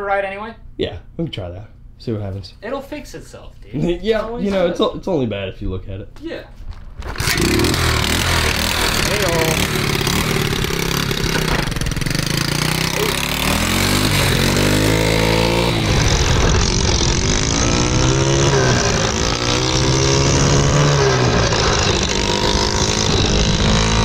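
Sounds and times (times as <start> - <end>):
mini bike engine revving: 7.0 - 24.0.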